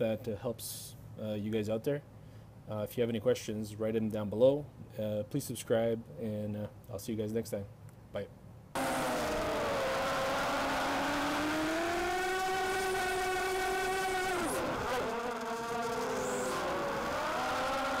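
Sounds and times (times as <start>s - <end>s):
quadcopter motors whining: 8.8s - 18.0s.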